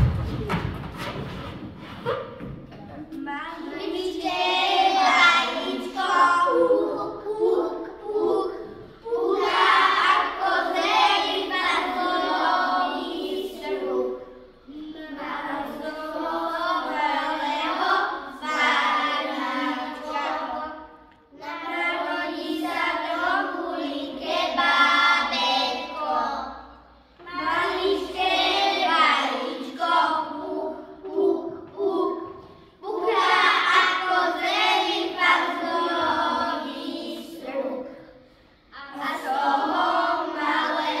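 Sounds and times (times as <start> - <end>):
children singing: 3.6 - 41.0.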